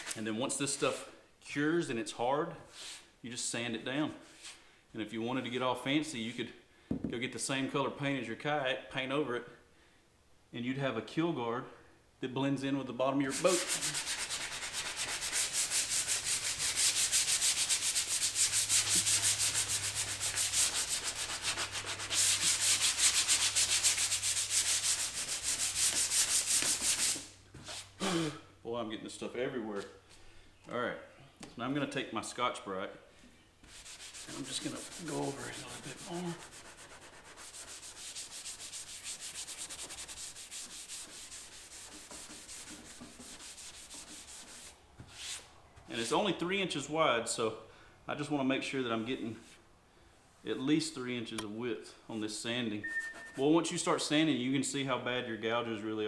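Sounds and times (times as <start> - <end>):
sandpaper rubbing on plastic: 13.3 - 27.9, 33.6 - 45.4.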